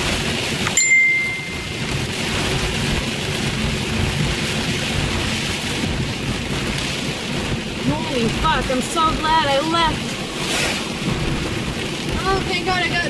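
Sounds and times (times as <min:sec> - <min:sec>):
heavy rain on a car: 0:00.0 - 0:13.0
steady low rumble: 0:00.0 - 0:13.0
short high tone: 0:00.7 - 0:01.9.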